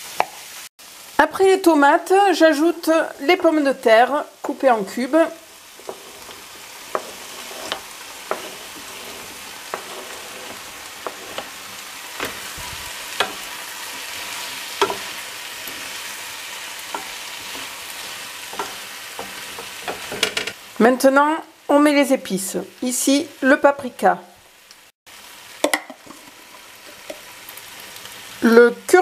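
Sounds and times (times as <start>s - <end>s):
vegetables sizzling in frying pan: 0.0s - 29.0s
wooden spoon scraping cutting board: 5.7s - 16.1s, 16.9s - 20.6s.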